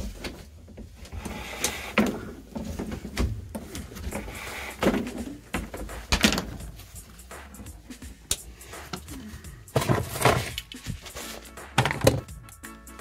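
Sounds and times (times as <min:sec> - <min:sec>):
knocks and thumps on floorboards: 0:02.0 - 0:06.8, 0:08.9 - 0:11.1, 0:11.8 - 0:12.4.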